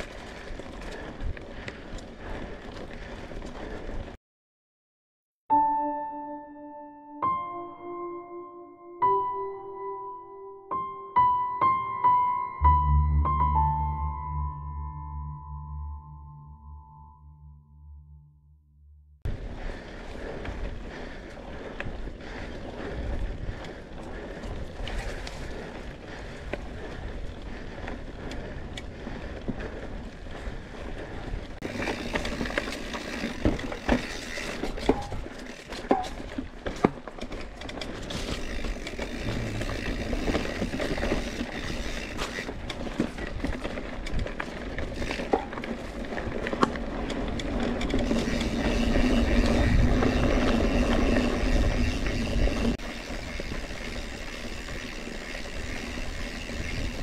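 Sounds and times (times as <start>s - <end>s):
bike clicking and rattling: 0.0s - 4.2s, 19.3s - 57.0s
bike tyres rolling on dirt: 0.0s - 4.2s, 19.3s - 57.0s.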